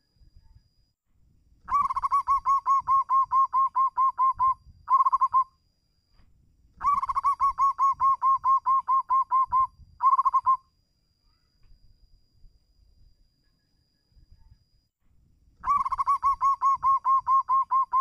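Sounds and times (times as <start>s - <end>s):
dove cooing: 1.7s - 5.5s, 6.8s - 10.6s, 15.6s - 18.0s.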